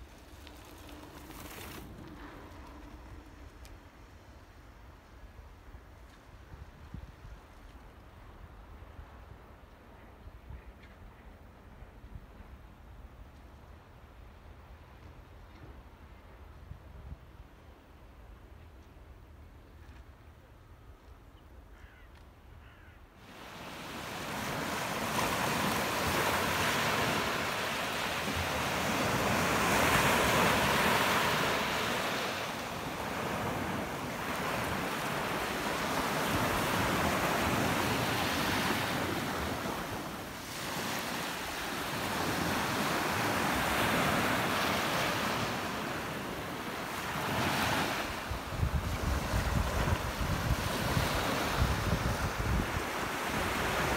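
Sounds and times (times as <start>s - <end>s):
small waves breaking on beach: 23.2s - 53.9s.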